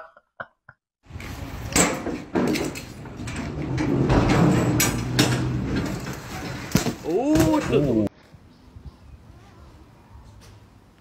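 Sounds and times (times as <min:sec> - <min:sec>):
metal clanks of container doors: 0:01.6 - 0:08.1.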